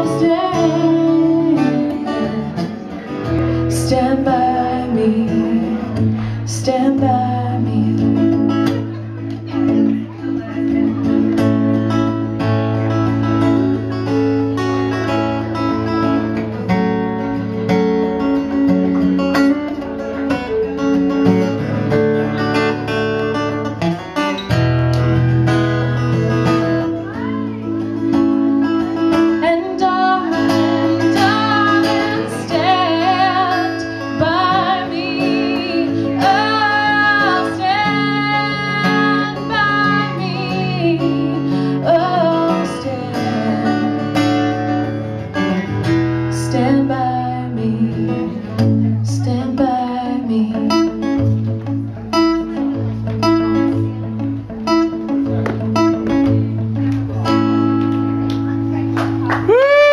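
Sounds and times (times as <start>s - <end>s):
woman singing: 0.0s - 8.9s, 29.0s - 44.5s, 46.3s - 51.1s
acoustic guitar playing: 0.0s - 59.9s.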